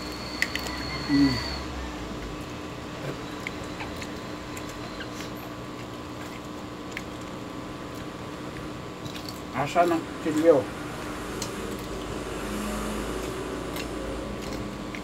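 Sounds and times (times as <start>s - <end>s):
steady hum: 0.0s - 15.0s
chewing: 2.2s - 15.0s
fingers picking at crisp skin: 13.0s - 15.0s.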